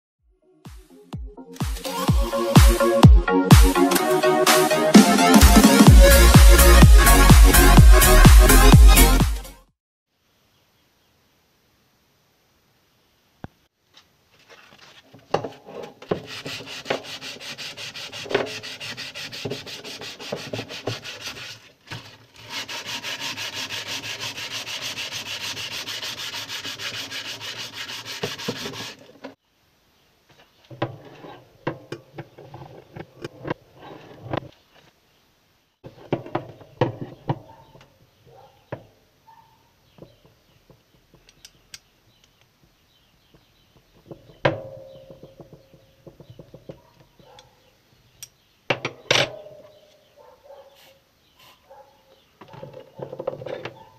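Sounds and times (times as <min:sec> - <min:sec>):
sandpaper rubbing on steel: 0:16.1 - 0:29.2.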